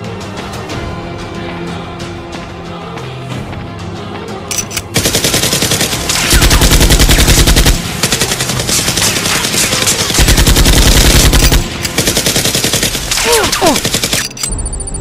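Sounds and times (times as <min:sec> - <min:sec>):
machine gun firing bursts: 0:04.9 - 0:14.4.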